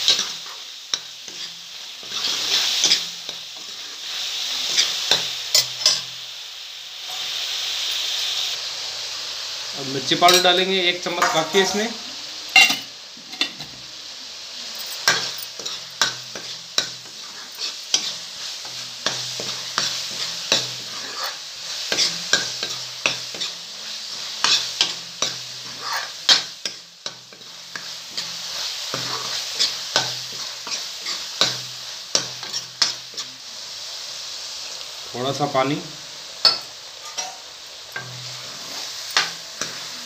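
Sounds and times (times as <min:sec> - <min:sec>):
spoon scraping a pan: 0:00.0 - 0:06.2, 0:10.2 - 0:13.8, 0:14.7 - 0:33.4, 0:36.4 - 0:40.0
vegetables sizzling in oil: 0:00.0 - 0:40.0.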